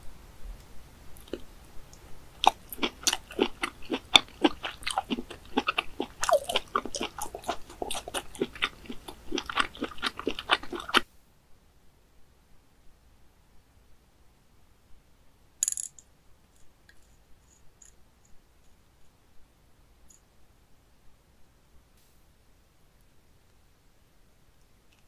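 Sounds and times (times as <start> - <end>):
chewing mouth clicks: 1.2 - 1.5, 2.4 - 11.0.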